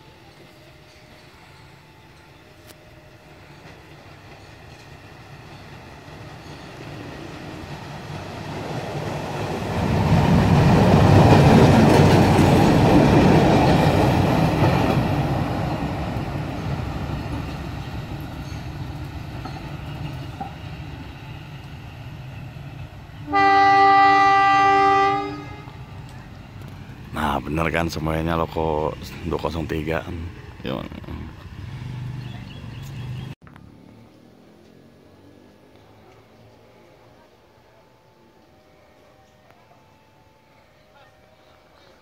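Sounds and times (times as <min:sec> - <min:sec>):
rail trolley engine rumbling past: 0:00.0 - 0:42.0
train horn blast: 0:23.2 - 0:25.9.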